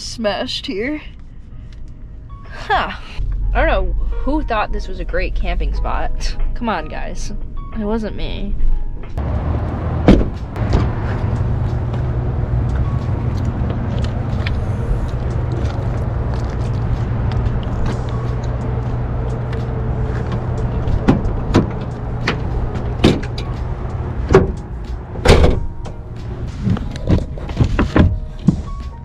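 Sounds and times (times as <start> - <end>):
steady low rumble: 0.0 - 29.0
knocks and thuds: 10.0 - 11.2, 24.3 - 24.6, 25.2 - 28.8
truck door opening click: 10.0 - 11.2, 19.5 - 28.9.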